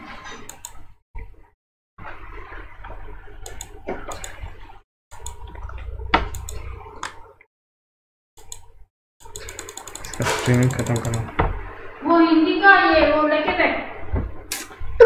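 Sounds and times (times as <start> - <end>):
sharp clicks and knocks: 9.3 - 11.5
room noise: 9.5 - 11.7.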